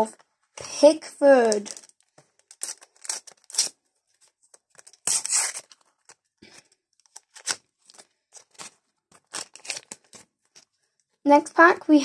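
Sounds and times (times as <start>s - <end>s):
wrapper crinkling: 1.3s - 10.7s
card pack wrapper ripping: 1.4s - 3.8s, 4.5s - 10.3s.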